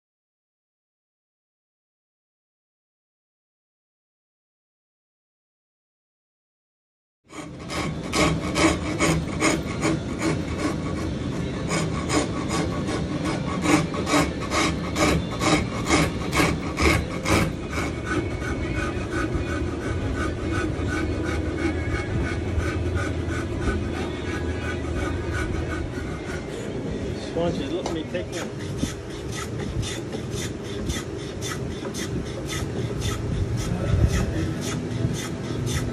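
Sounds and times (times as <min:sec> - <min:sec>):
rasp filing wood: 0:07.3 - 0:35.9.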